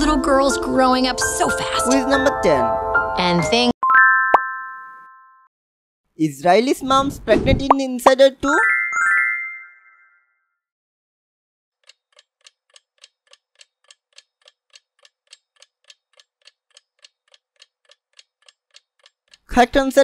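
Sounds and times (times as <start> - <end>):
chime ringing: 3.8 - 5.5, 8.6 - 10.4
countdown clock ticking: 11.8 - 20.0.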